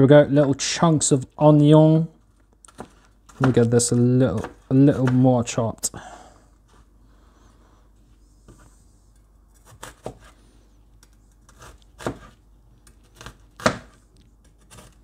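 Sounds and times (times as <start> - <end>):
knife chopping on cutting board: 4.3 - 5.3, 9.6 - 10.4, 11.4 - 12.4, 13.0 - 15.0.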